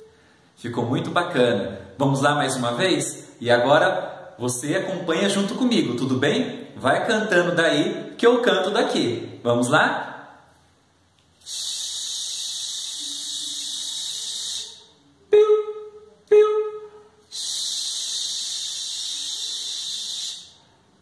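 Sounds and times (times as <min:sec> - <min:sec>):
man making shushing sound: 0:11.4 - 0:14.9, 0:17.3 - 0:20.6
man imitating chick chirps: 0:11.5 - 0:20.5.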